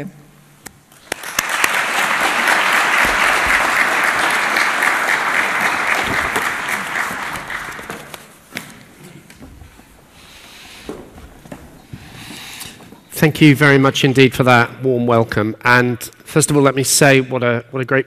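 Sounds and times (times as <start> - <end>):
audience applauding: 1.0 - 8.3.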